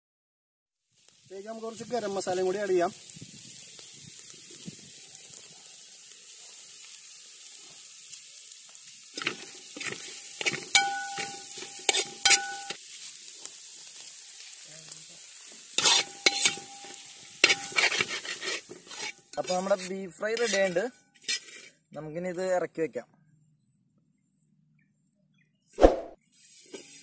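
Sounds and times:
meat sizzling in a pan: 0:00.8 - 0:21.9, 0:26.2 - 0:27.0
metal spatula scraping: 0:09.2 - 0:12.8, 0:15.7 - 0:21.9, 0:25.8 - 0:27.0
pan ringing when struck: 0:10.8 - 0:11.5.

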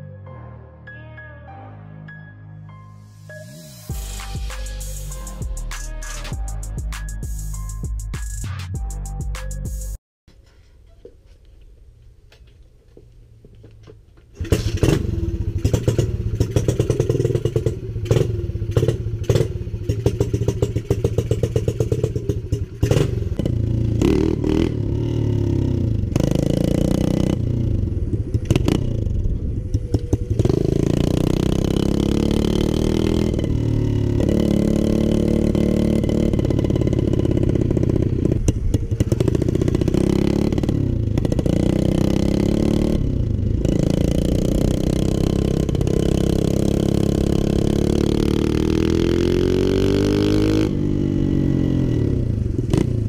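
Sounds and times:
motorbike engine idling and revving: 0:14.3 - 0:53.0.

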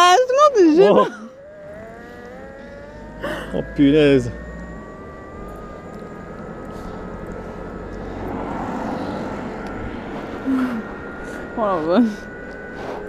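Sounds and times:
electric motor whining: 0:00.0 - 0:13.0
wheels rumbling on asphalt: 0:00.0 - 0:13.0.

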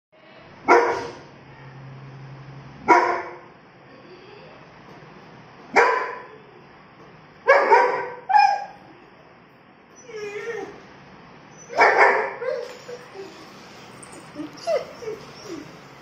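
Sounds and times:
dog barking: 0:00.7 - 0:01.3, 0:02.9 - 0:03.5, 0:05.7 - 0:06.3, 0:07.5 - 0:08.8, 0:11.7 - 0:12.6.

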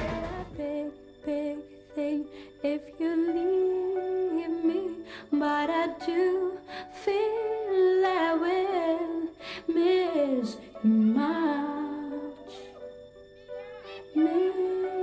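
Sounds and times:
musical accompaniment: 0:00.0 - 0:01.5
woman singing pop melody: 0:00.0 - 0:12.6, 0:14.1 - 0:15.0.

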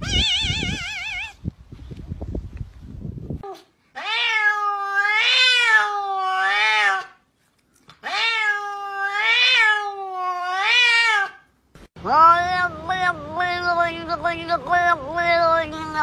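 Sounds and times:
cat meowing: 0:00.0 - 0:01.4, 0:03.5 - 0:07.2, 0:08.0 - 0:11.4.

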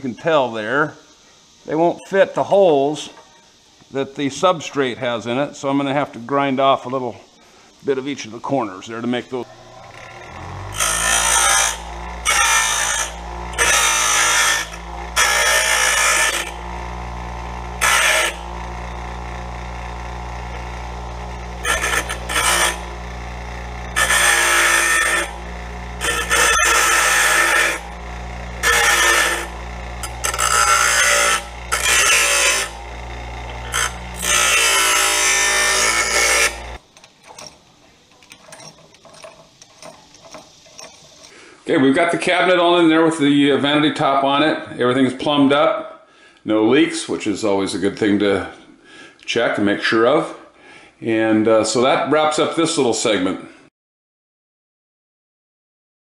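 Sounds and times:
bench grinder motor hum: 0:09.4 - 0:41.4
metal washers grinding on wheel: 0:09.4 - 0:41.5.

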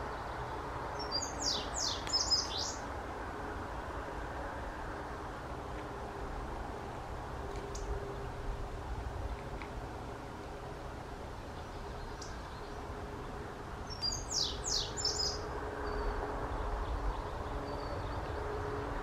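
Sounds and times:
bunting singing: 0:01.0 - 0:02.9, 0:13.9 - 0:16.0.

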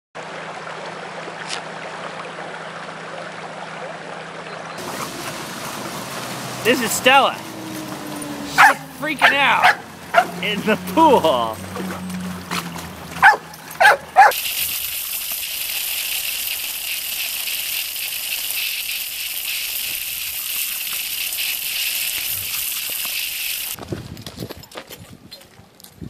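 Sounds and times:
water splashing: 0:00.4 - 0:23.8
dog yipping: 0:08.2 - 0:10.4, 0:13.2 - 0:14.4
hose spray nozzle hissing: 0:13.2 - 0:23.8.

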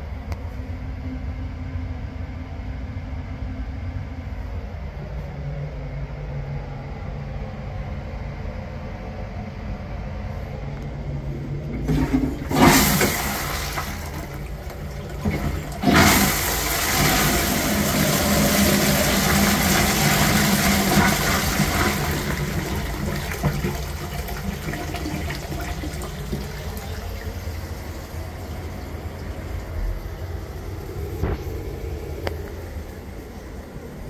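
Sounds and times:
toilet flushing: 0:11.4 - 0:32.4.

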